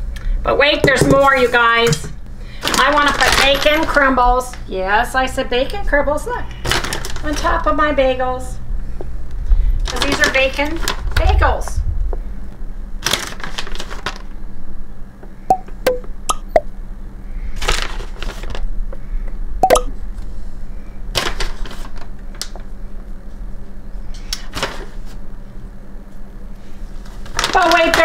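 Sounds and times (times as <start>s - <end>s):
plastic bag rustling: 6.6s - 7.6s, 9.8s - 11.2s, 13.0s - 14.3s, 27.0s - 28.0s.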